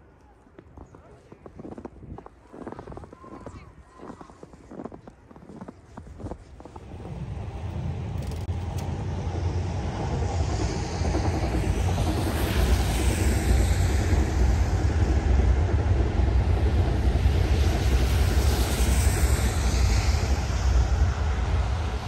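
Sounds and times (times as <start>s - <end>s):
electric train rumbling: 4.8s - 22.0s.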